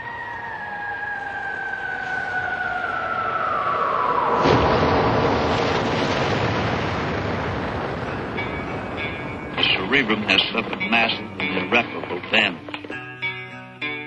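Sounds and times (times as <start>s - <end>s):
explosion with rumble: 3.4s - 10.8s.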